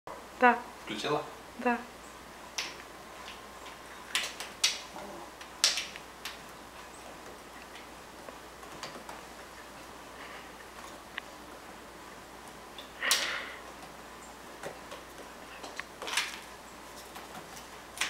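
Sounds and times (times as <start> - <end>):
claws clicking on tile floor: 2.5 - 9.7, 14.6 - 18.0.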